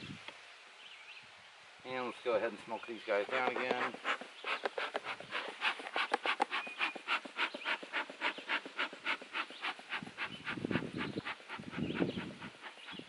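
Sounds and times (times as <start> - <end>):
bellows puffing air: 3.0 - 13.0.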